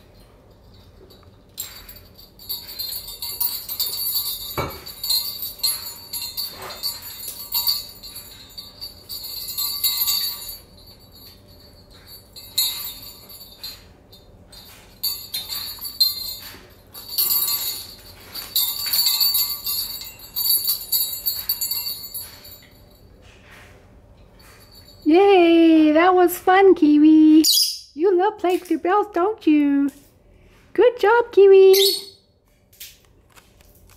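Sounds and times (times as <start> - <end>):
small bells shaken by a bird: 0.0 - 23.2, 24.4 - 25.9, 31.6 - 32.2.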